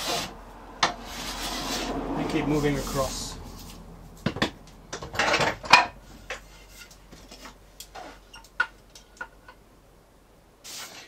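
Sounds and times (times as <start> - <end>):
hand plane stroke: 0.0 - 3.9.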